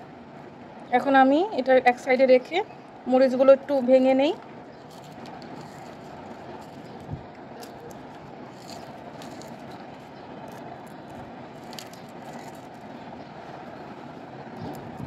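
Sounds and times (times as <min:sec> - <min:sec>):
low rumbling background noise: 0:00.0 - 0:15.0
chillies crackling: 0:04.2 - 0:15.0.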